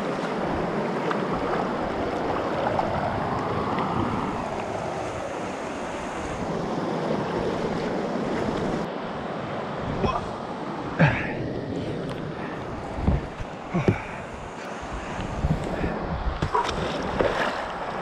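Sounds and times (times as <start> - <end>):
river water rushing: 0.0 - 18.0
wind buffeting microphone: 11.2 - 18.0.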